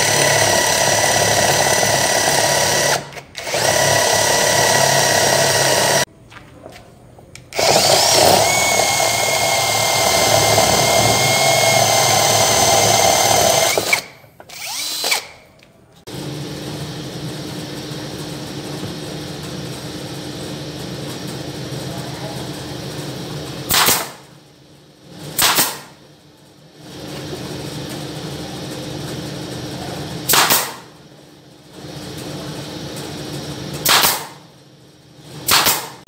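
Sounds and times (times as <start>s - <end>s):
cordless drill whining through wood: 0.0s - 6.1s, 7.5s - 15.4s.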